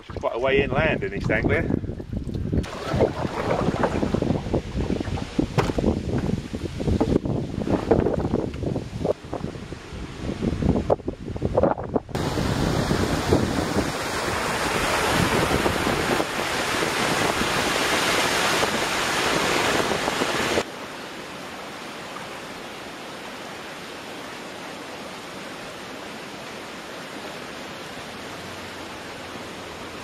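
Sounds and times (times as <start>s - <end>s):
wind on microphone: 0.0s - 20.6s
water rushing over weir: 2.3s - 9.4s, 12.2s - 30.0s.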